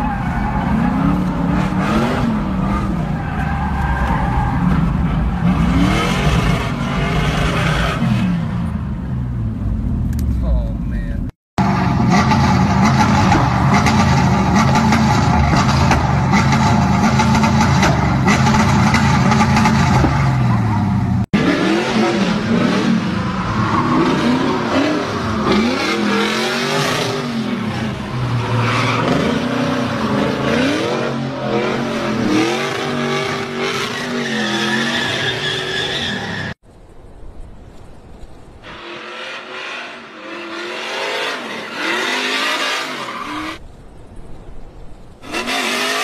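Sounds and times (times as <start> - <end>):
engine revving up and down: 5.2 - 8.6, 11.6 - 35.8, 38.7 - 43.6
tyres squealing: 27.8 - 36.6.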